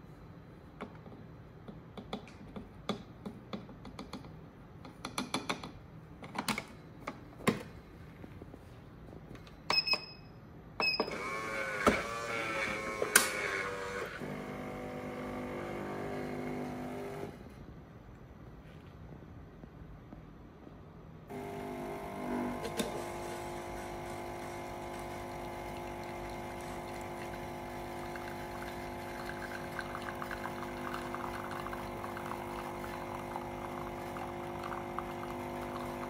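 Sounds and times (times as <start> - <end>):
coffee machine motor whining: 11.0 - 17.4, 21.3 - 36.0.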